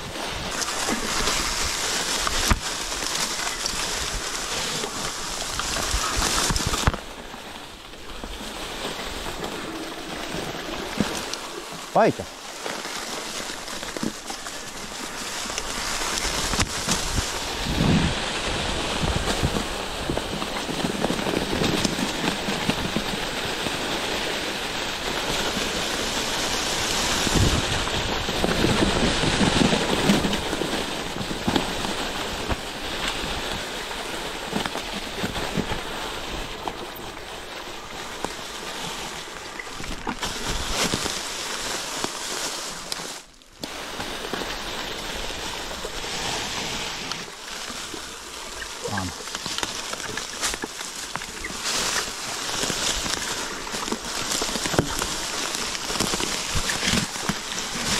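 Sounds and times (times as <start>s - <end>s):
wind on microphone: 16.2s - 22.0s, 26.0s - 33.9s.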